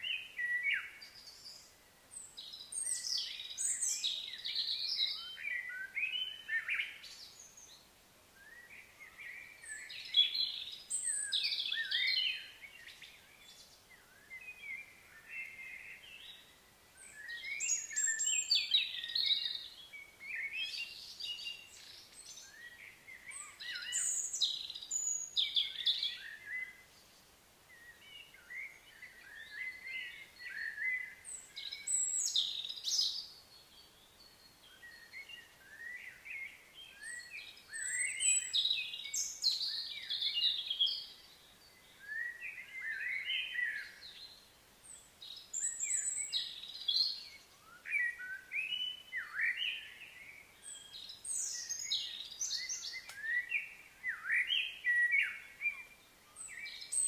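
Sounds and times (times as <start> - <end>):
birds singing and chirping: 0.0 - 57.0
faint outdoor background: 0.0 - 57.0.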